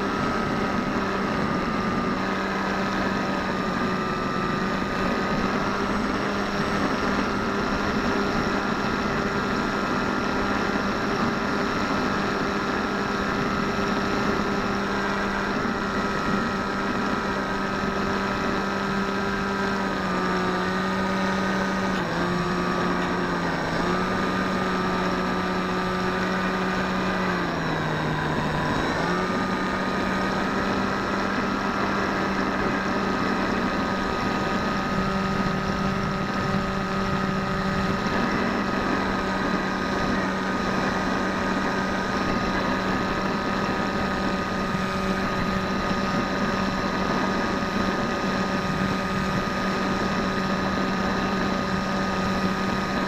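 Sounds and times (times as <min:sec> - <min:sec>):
electric motor and propeller drone: 0:00.0 - 0:53.0
rushing airflow: 0:21.2 - 0:53.0.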